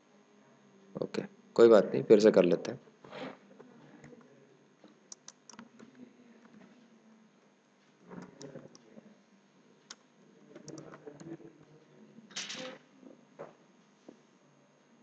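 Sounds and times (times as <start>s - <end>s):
keyboard typing: 10.6s - 11.3s.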